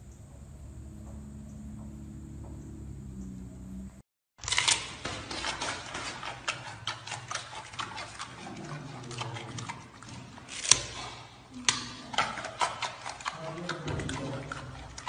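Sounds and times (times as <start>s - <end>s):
animal crunching and chewing carrot: 4.4s - 15.0s.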